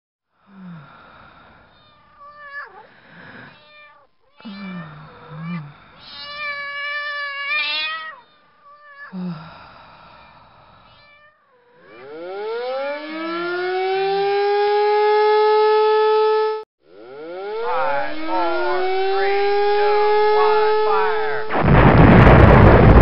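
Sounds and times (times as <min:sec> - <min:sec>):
cat meowing: 0:01.8 - 0:02.9, 0:03.5 - 0:09.1, 0:10.9 - 0:11.4
siren wailing: 0:11.9 - 0:22.0.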